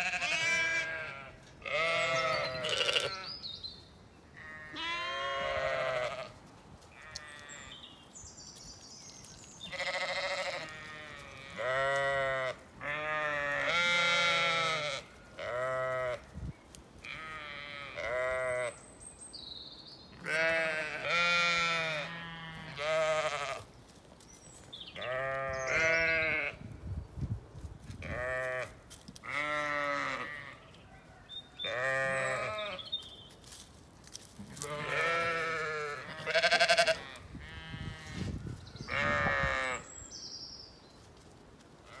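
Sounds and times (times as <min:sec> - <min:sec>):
sheep bleating: 0:00.0 - 0:03.3, 0:04.4 - 0:06.4, 0:09.6 - 0:16.2, 0:17.0 - 0:18.8, 0:20.2 - 0:23.7, 0:25.0 - 0:26.6, 0:28.0 - 0:30.6, 0:31.6 - 0:32.9, 0:34.5 - 0:38.2, 0:38.9 - 0:39.9.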